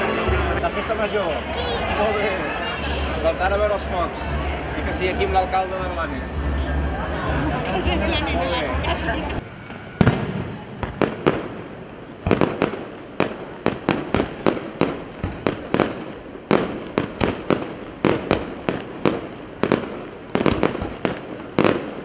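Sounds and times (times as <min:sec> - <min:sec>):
fireworks crackling: 0:00.0 - 0:22.0
fireworks bangs: 0:09.4 - 0:22.0.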